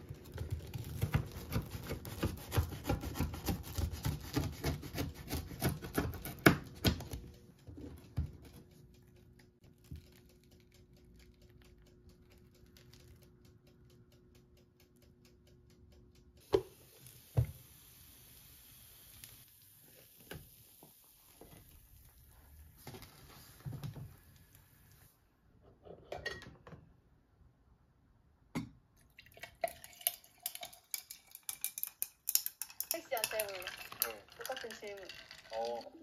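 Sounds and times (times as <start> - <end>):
coffee poured over ice: 29.1 - 36.0.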